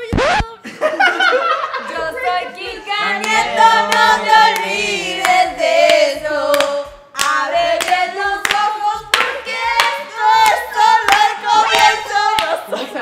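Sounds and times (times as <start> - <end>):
group singing: 1.6 - 13.0
hand claps: 3.2 - 12.6.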